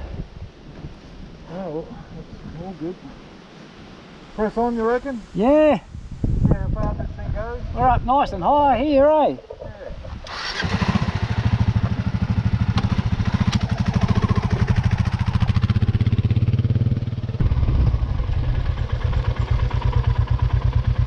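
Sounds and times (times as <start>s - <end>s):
motorcycle engine running: 10.5s - 21.0s.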